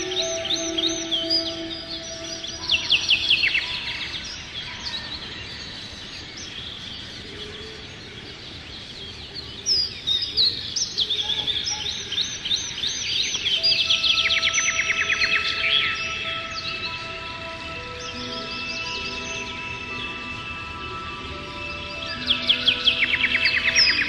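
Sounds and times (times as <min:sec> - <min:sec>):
fast descending bird trills: 0:00.0 - 0:04.3
songbirds chirping: 0:00.0 - 0:24.0.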